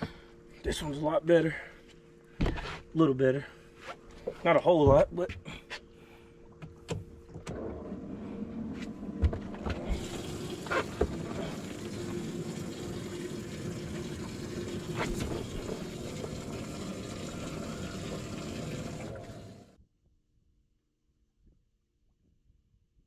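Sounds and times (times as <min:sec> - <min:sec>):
low steady hum: 0:00.0 - 0:19.8
running water: 0:09.6 - 0:19.8.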